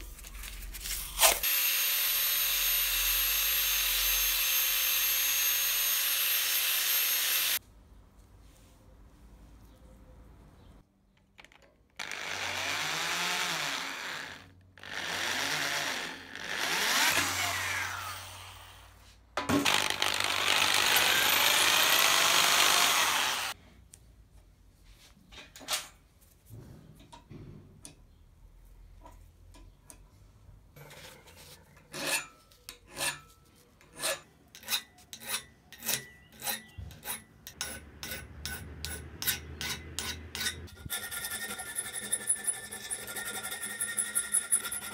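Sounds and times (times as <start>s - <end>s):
power drill whining into brass: 1.4s - 7.6s, 19.6s - 23.6s
hand file rasping on brass: 34.0s - 44.9s.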